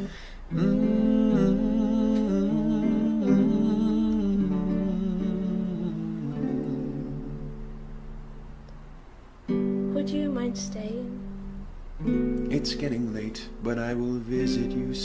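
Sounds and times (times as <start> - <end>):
person humming a melody: 0.0 - 7.8
acoustic guitar: 0.0 - 15.0.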